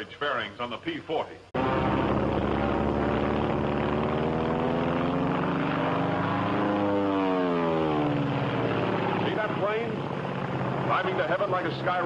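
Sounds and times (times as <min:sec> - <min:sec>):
propeller aircraft engine droning: 0:00.0 - 0:12.0.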